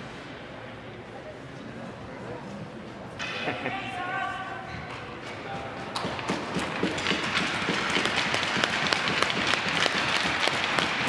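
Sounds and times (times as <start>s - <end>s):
crowd applauding: 6.6s - 11.0s.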